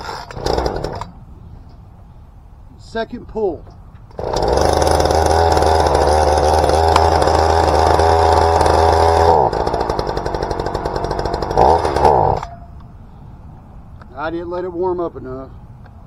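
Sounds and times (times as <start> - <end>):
chainsaw engine running: 0.0 - 1.1, 4.1 - 12.5.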